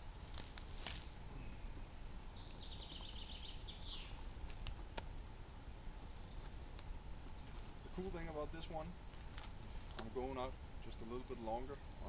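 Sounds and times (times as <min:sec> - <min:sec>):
rucksack buckles and straps handled: 0:04.1 - 0:05.1, 0:06.0 - 0:10.1.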